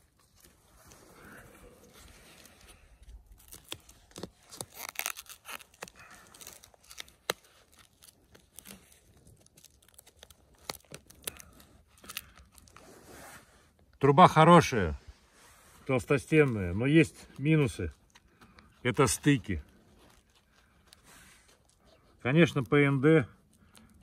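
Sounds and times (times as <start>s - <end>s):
crinkling and sharp clicks: 2.0s - 12.8s
tape ripping off roll: 3.4s - 9.0s.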